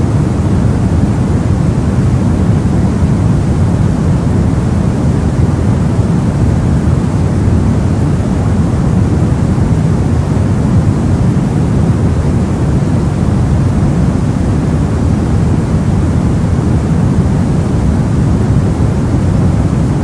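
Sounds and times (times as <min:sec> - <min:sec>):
deep white noise hiss: 0:00.0 - 0:20.0.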